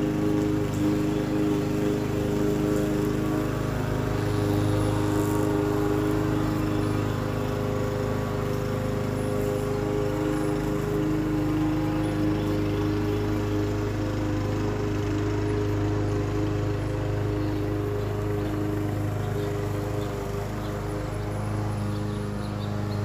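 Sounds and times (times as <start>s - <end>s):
lawn mower running: 0.0s - 23.0s.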